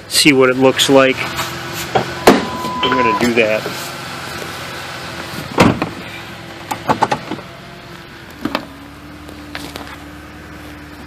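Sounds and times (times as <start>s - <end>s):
truck engine idling: 0.0s - 11.0s
knocks and clunks in cab: 5.5s - 6.0s, 6.7s - 7.5s.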